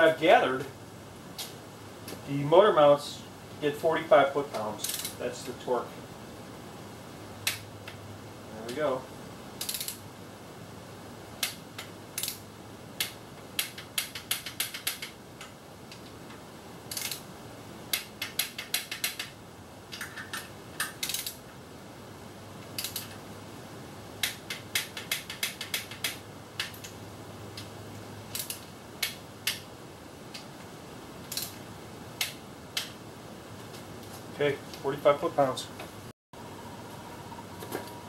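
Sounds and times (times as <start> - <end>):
socket ratchet clicking: 4.8 - 5.2, 9.6 - 10.0, 11.4 - 12.4, 13.0 - 16.0, 16.9 - 17.2, 17.9 - 19.4, 20.0 - 21.4, 22.6 - 23.2, 24.2 - 27.0, 28.3 - 29.7, 31.3 - 31.6.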